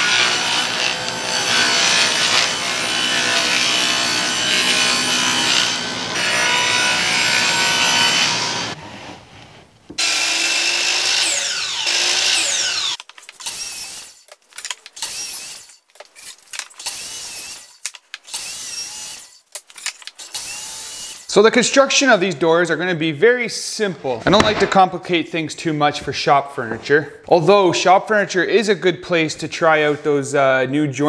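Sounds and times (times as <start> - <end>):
table saw ripping plywood: 0.0 - 7.4, 10.0 - 21.3
miter saw crosscutting: 10.0 - 21.3.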